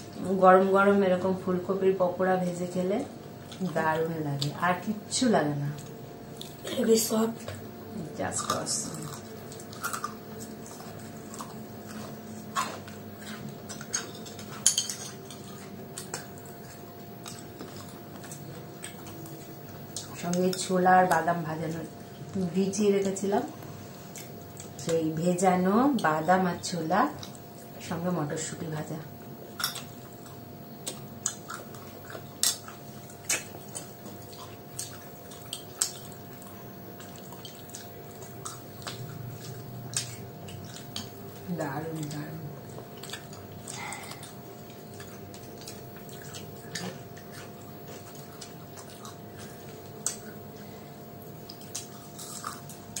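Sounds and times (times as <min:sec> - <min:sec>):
faint hum: 0:00.0 - 0:53.0
food crunching while chewed: 0:03.2 - 0:04.7, 0:05.6 - 0:28.0, 0:28.8 - 0:53.0
spoon clinking on a plate: 0:14.6 - 0:15.2.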